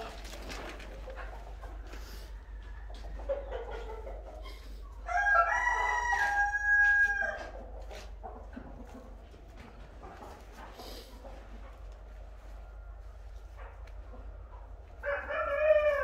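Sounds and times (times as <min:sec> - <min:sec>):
rooster crowing: 0:05.0 - 0:07.6, 0:15.0 - 0:16.0.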